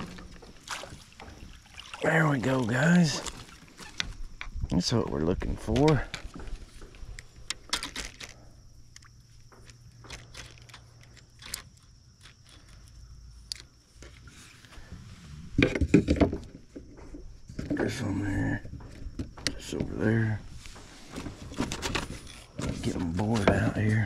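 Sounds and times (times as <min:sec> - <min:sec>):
fishing gear clicks and taps: 0:05.5 - 0:14.3.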